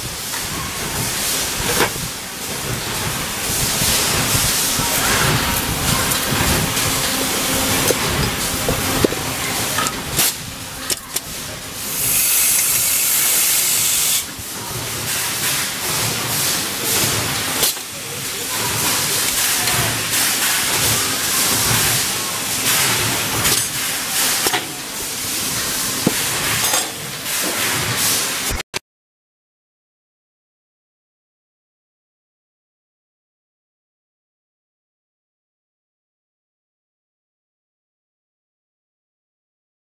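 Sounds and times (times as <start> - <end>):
steady machine din: 0.8 - 27.1
loud hiss: 11.8 - 14.3.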